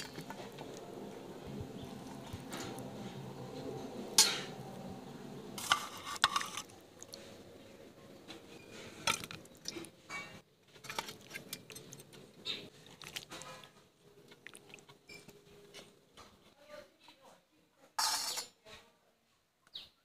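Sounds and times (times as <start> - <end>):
steel spoons clinking on plates: 4.2 - 4.5, 18.0 - 18.6.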